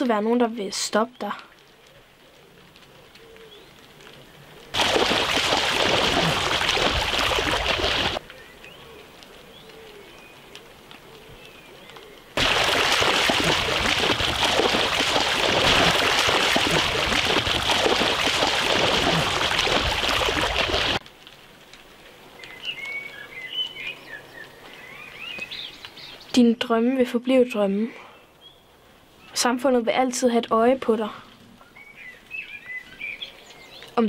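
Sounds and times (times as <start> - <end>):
people splashing through water: 4.7 - 8.2, 12.4 - 21.0.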